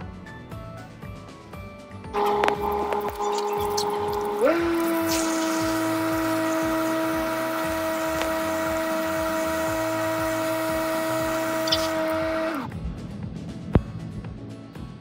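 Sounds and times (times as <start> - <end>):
pressure washer humming: 2.2 - 12.7
water jet hissing and splashing: 2.5 - 12.2.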